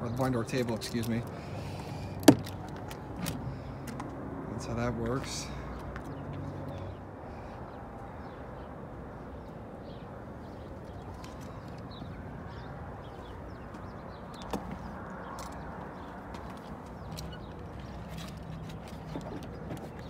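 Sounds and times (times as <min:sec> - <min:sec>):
small birds chirping: 0:04.8 - 0:20.0.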